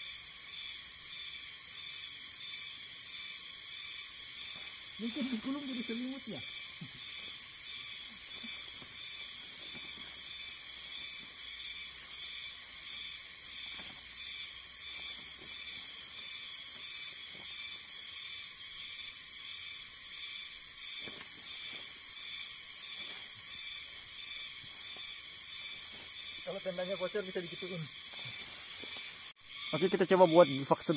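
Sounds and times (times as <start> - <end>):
insects chirring: 0.0 - 30.9.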